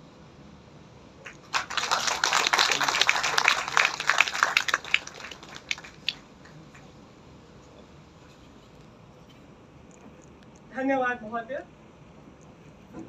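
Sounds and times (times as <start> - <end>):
crowd clapping: 1.2 - 6.9.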